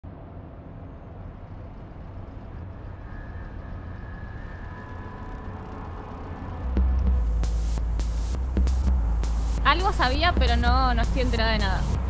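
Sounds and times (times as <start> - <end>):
lower steady tone: 0.2 - 12.0
city traffic rumble: 4.4 - 12.0.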